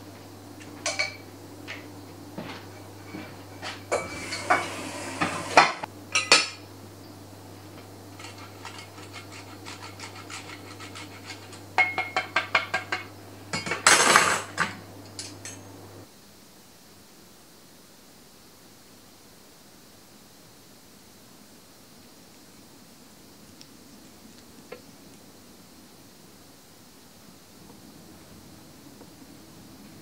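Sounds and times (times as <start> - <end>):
low electrical hum: 0.0 - 30.0
cheese grater rasping: 8.2 - 11.7
grater clinking against plate: 8.2 - 13.0.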